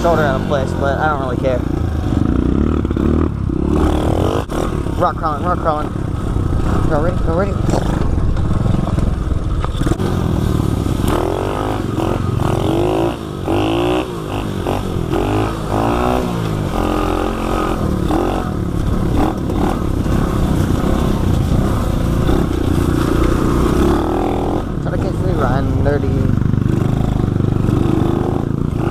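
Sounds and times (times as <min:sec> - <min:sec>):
small motorbike engine revving: 0:00.0 - 0:05.7, 0:07.6 - 0:28.9.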